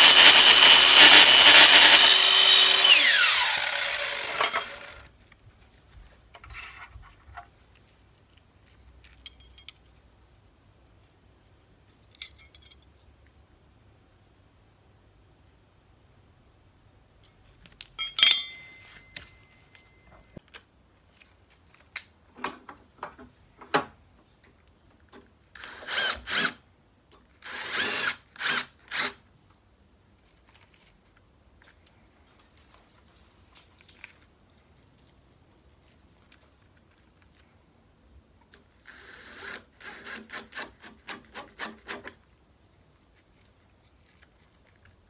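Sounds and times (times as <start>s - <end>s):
cordless drill driving screws: 0.0s - 5.0s, 25.6s - 26.6s, 27.4s - 29.2s, 38.8s - 42.2s
sharp metallic clank: 17.8s - 20.0s.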